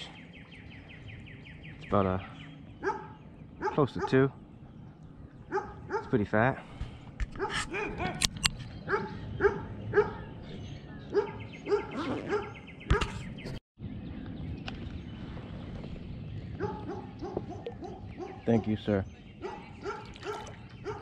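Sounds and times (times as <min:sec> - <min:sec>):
animal yelping: 0:11.2 - 0:12.6.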